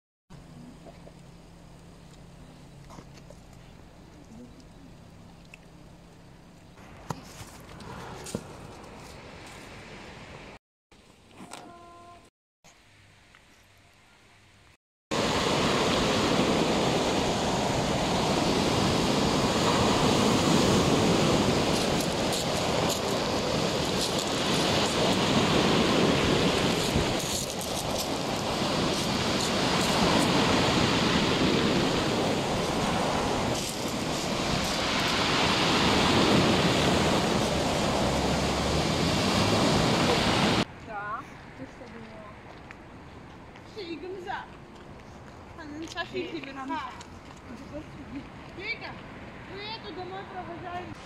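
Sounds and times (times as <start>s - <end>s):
waves breaking on beach: 15.1s - 40.7s.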